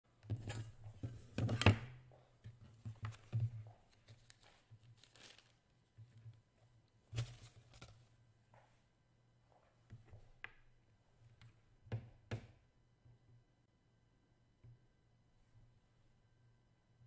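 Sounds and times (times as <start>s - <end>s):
paper rustling and crinkling: 2.8s - 6.3s.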